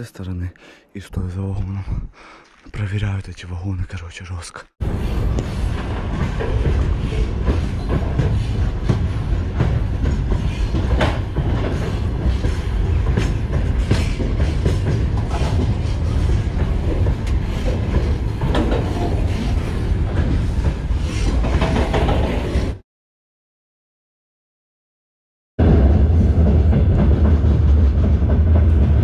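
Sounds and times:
freight train rumbling: 4.8s - 22.8s, 25.6s - 29.0s
train clanks and wheel clicks: 4.9s - 22.8s, 25.9s - 29.0s.

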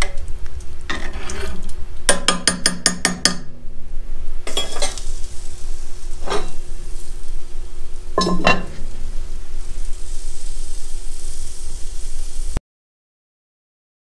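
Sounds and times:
cast iron lid clanking on pot: 4.5s - 5.0s, 8.2s - 8.9s.

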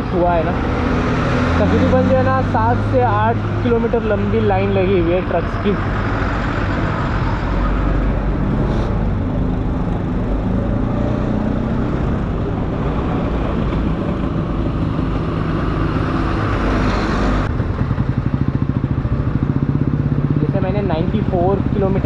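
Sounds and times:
truck engines: 0.0s - 22.0s
scooter engine running: 12.2s - 22.0s.

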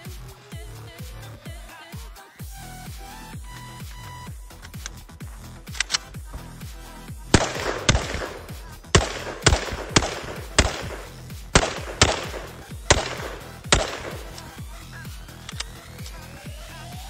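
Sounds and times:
electronic background music: 0.0s - 17.0s
rifle gunshots: 7.3s - 14.8s.

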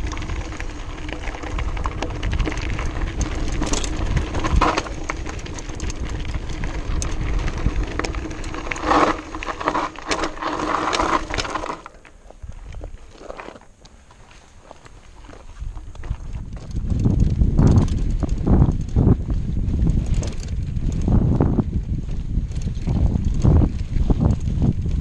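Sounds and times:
bike rattling and clicking: 0.0s - 14.2s, 15.6s - 25.0s
bike tyres crunching over gravel: 0.0s - 25.0s
wind rumbling on camera: 0.0s - 25.0s
harsh scraping bursts: 3.2s - 5.8s, 6.6s - 11.9s.

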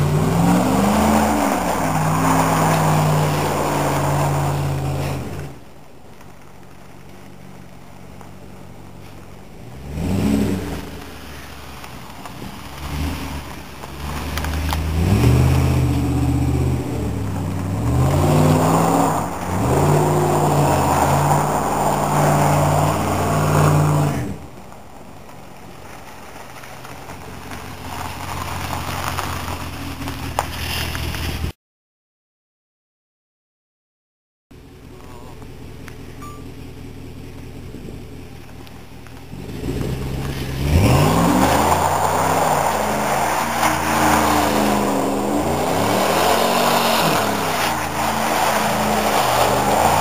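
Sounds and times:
pickup truck engine revving: 0.0s - 5.5s, 9.6s - 11.1s, 14.0s - 24.4s, 39.3s - 50.0s.

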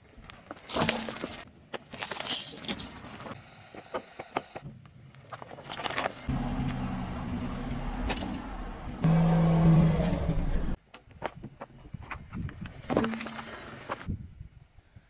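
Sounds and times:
car engine humming: 6.3s - 10.8s.

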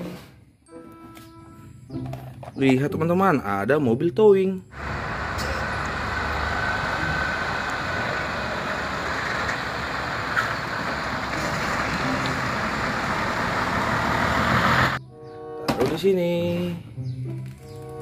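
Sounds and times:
truck engine driving past: 4.7s - 15.0s.

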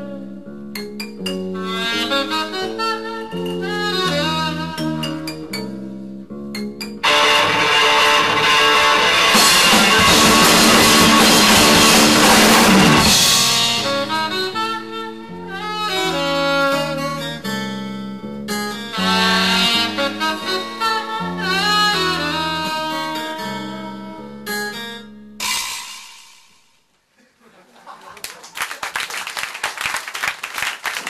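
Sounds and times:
full band music: 6.6s - 17.6s, 18.6s - 23.2s.

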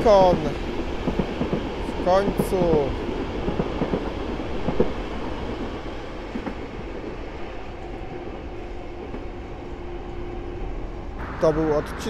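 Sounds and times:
train wheels clicking over rail joints: 0.0s - 8.0s
passenger train rumbling past: 0.0s - 12.0s.

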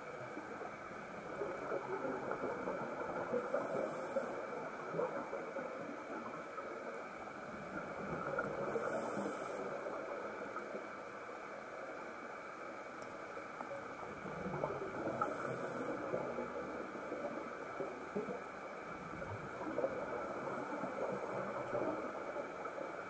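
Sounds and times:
underwater bubbling crackle: 0.0s - 23.0s
scuba regulator breath hiss: 3.4s - 4.4s, 8.7s - 9.8s, 15.1s - 16.2s.

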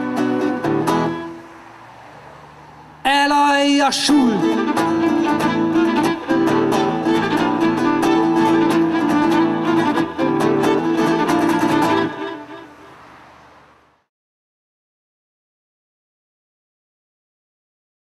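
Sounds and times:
acoustic guitar: 0.0s - 1.6s, 3.1s - 13.1s
violin: 0.0s - 1.6s, 4.1s - 13.3s.

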